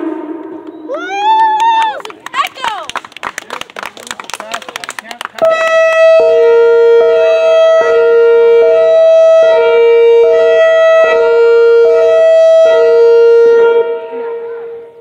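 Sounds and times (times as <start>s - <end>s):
two-note warning siren wail: 5.4s - 15.0s.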